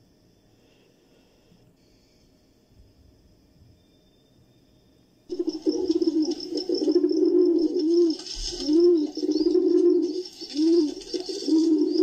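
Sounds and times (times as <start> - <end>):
pigeons cooing: 5.3 - 12.0
small birds chirping: 5.3 - 12.0.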